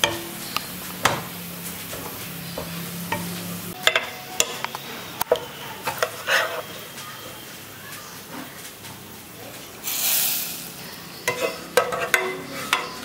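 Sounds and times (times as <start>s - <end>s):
garlic sizzling in oil: 0.0s - 13.0s
metal spatula scraping a pan: 1.6s - 7.0s, 9.8s - 13.0s.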